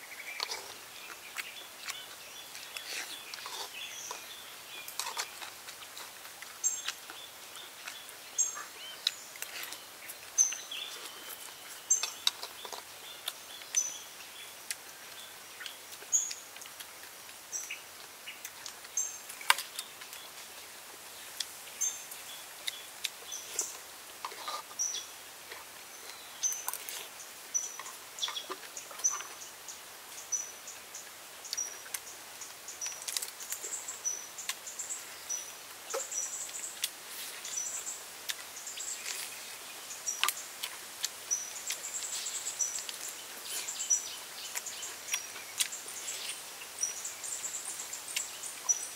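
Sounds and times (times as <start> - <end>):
outdoor hiss: 0.0 - 48.9
person eating with clicks and smacks: 0.2 - 13.8, 14.6 - 17.4, 18.0 - 20.5, 22.6 - 24.8, 31.5 - 33.7, 35.9 - 37.0, 38.2 - 39.4, 40.1 - 43.7, 44.4 - 45.8.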